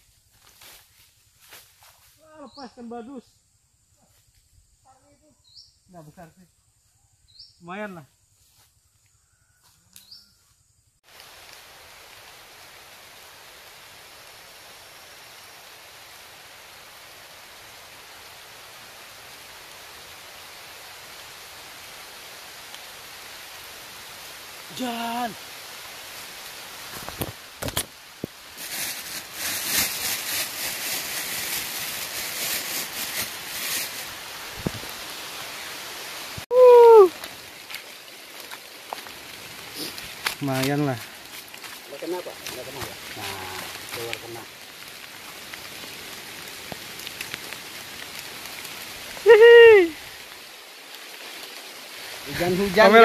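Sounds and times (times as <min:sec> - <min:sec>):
heavy rain: 0:11.0 - 0:53.0.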